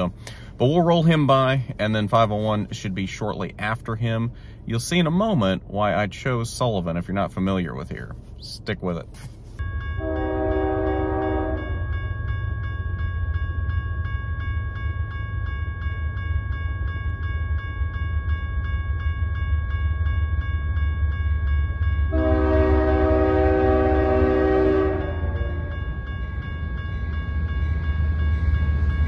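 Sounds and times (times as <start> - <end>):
low train rumble: 0.0 - 29.0
locomotive horn blasts: 10.0 - 11.8, 22.1 - 25.9.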